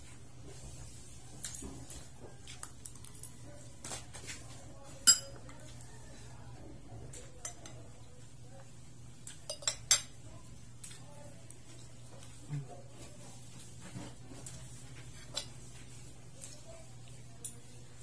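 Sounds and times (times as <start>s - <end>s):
cutlery clinking against dishes: 5.0s - 5.7s, 7.2s - 7.8s, 9.2s - 10.2s.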